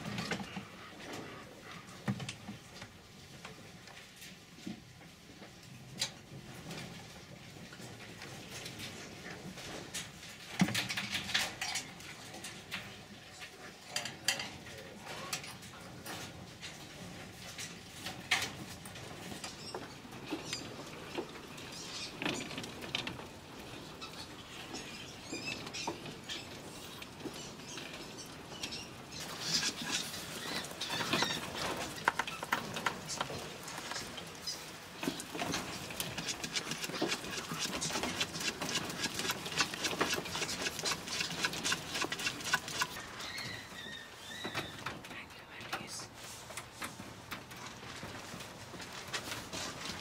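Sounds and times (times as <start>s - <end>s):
claws scratching wire mesh: 28.6s - 43.0s.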